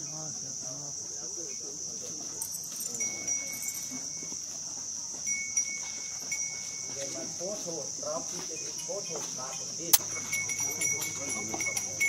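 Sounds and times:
faint voices: 0.0s - 6.3s
high-pitched insect drone: 0.0s - 12.0s.

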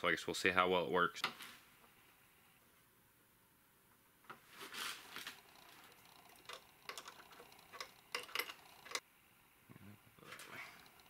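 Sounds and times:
hand ratchet clicking: 5.5s - 9.0s.

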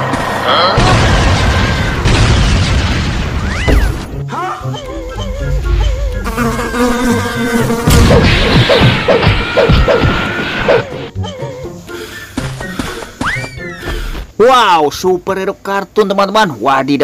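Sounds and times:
swarm of bees buzzing: 5.4s - 8.3s.

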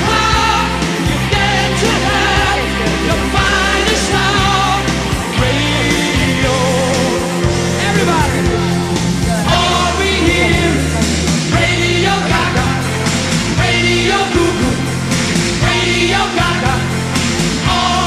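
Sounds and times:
rock song with singing: 0.0s - 18.0s.

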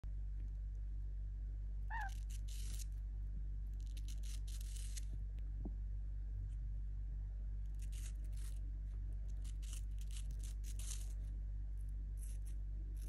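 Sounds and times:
steady low hum: 0.0s - 13.0s
bird chirp: 1.9s - 2.2s
harsh scratchy bird rasping: 1.9s - 3.0s, 3.8s - 5.0s, 9.3s - 11.2s.

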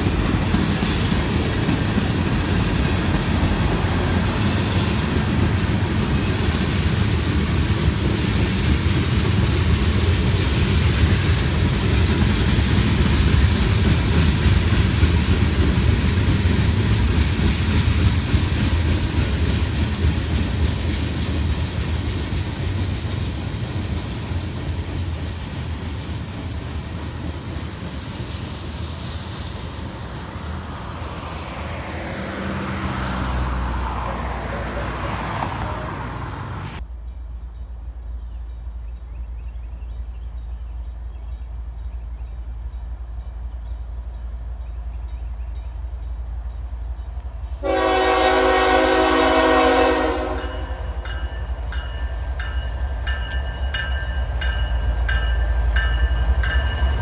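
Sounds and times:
diesel locomotive rumble: 0.0s - 57.0s
freight train rumbling: 0.0s - 57.0s
locomotive air horn blast: 47.6s - 50.7s.

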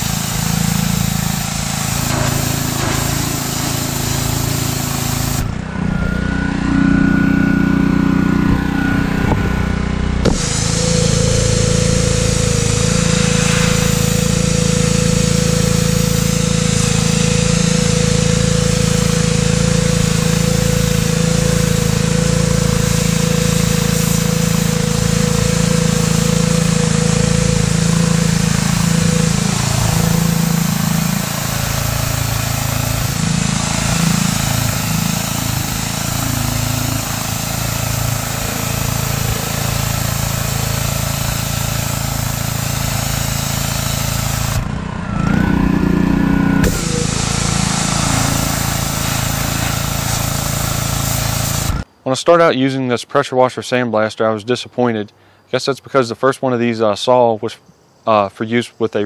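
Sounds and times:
water jet hissing on steel: 0.0s - 5.6s, 10.3s - 44.6s, 46.6s - 51.9s
pressure washer motor drone: 0.0s - 51.9s.

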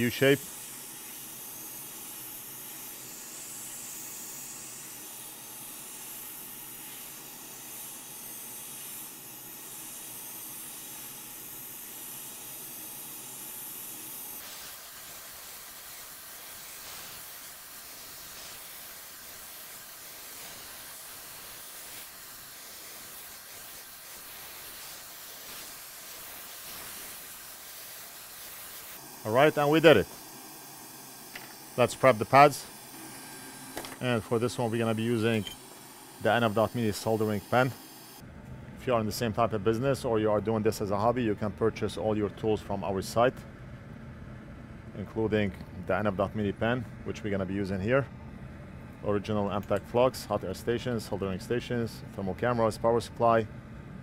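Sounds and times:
hot air station hissing: 0.0s - 38.2s.

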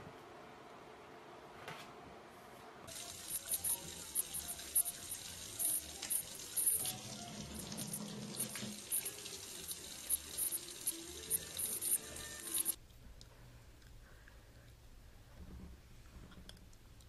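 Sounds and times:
faucet running into steel sink: 2.9s - 12.8s.

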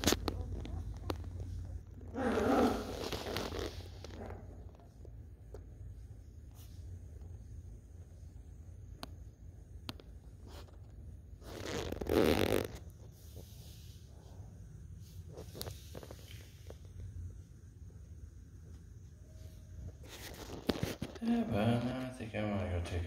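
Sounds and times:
low room hum: 0.0s - 23.0s
rustling scuffle: 19.4s - 21.9s.

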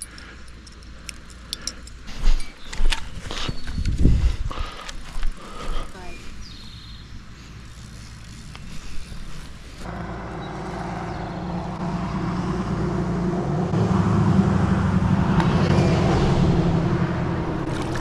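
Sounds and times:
vehicle engine running: 6.6s - 18.0s.

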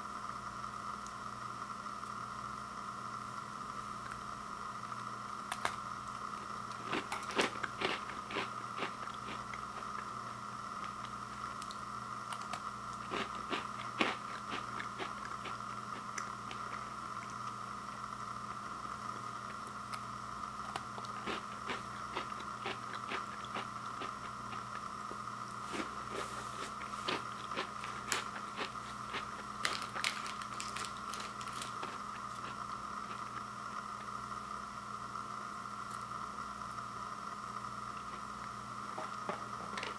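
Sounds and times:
steady background hiss: 0.0s - 39.9s
cookie crunching: 5.5s - 18.0s, 19.4s - 33.5s.

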